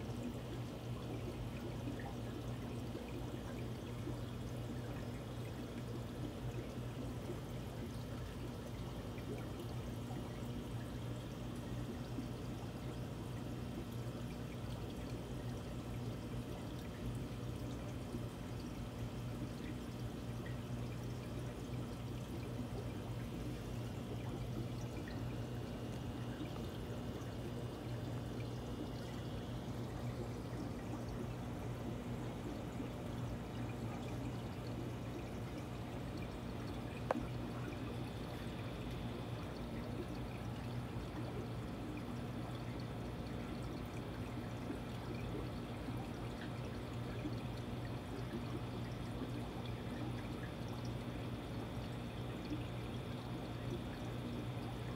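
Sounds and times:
aquarium filter water trickling: 0.0 - 54.9
low steady hum: 0.0 - 54.9.

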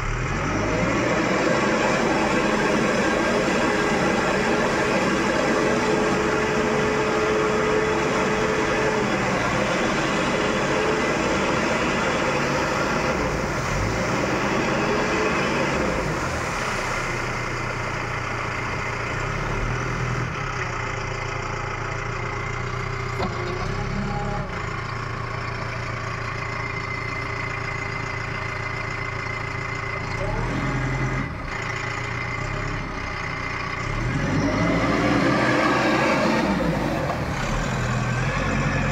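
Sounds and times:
diesel engine running: 0.0 - 38.9
water splashing from wheel: 1.3 - 19.1.

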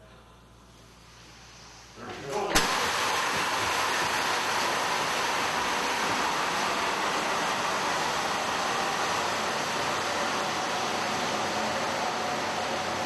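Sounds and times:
loud hiss of rushing helium: 2.6 - 10.3.

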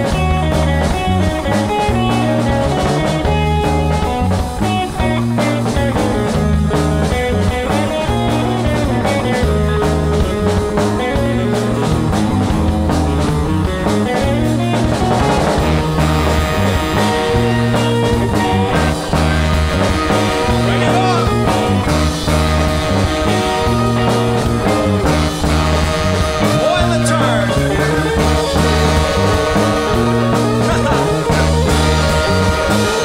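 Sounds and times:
drums: 0.0 - 33.0
electric bass: 0.0 - 33.0
electric guitar: 0.0 - 33.0
organ: 0.0 - 33.0
trumpet and saxophones: 14.3 - 33.0.

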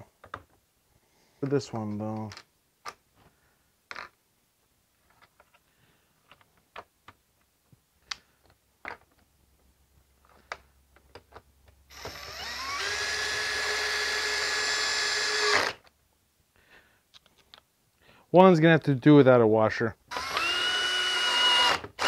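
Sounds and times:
cordless drill driving bolt: 11.9 - 15.9, 20.1 - 22.0.

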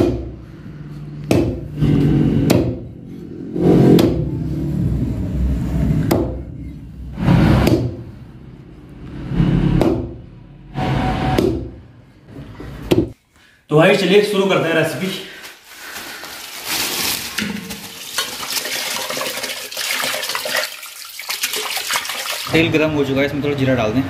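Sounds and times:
cleaver chopping on wooden block: 1.3 - 1.6.

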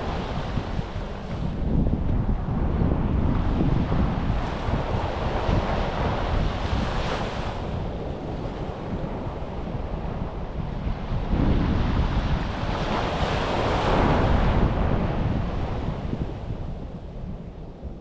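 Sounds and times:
sea waves washing onto beach: 0.0 - 16.8
wind buffeting microphone: 0.0 - 18.0.

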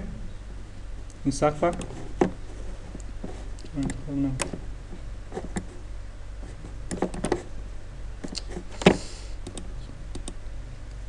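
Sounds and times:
low electrical hum: 0.0 - 11.0
computer mouse clicks: 8.2 - 10.4.

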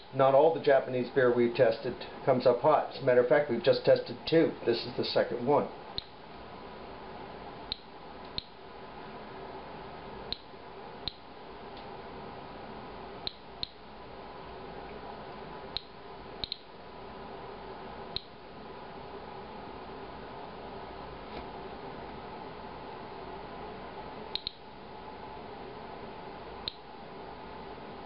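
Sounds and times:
faint room hum: 0.0 - 28.0
geiger counter clicks: 15.8 - 16.7, 24.4 - 24.6.

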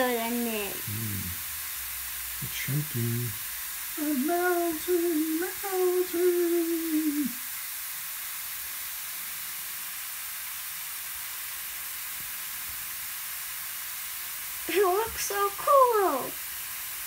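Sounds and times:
fizzing hiss in water: 0.0 - 17.0
person humming: 0.8 - 1.4, 2.7 - 3.3, 4.4 - 7.4.

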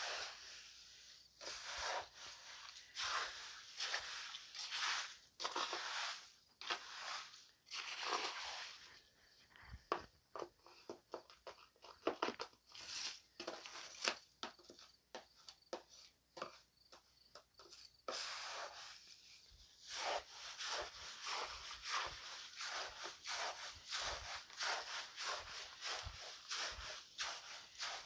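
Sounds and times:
trowel scraping wet charcoal: 0.0 - 0.8, 1.4 - 9.0, 12.8 - 14.2, 18.0 - 28.0.

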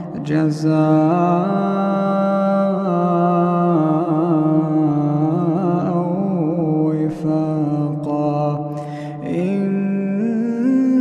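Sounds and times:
man chanting recitation: 0.0 - 11.0.

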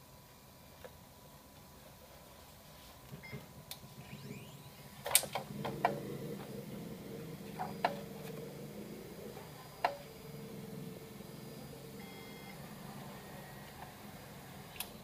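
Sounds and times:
printer motor hum: 2.9 - 15.0.

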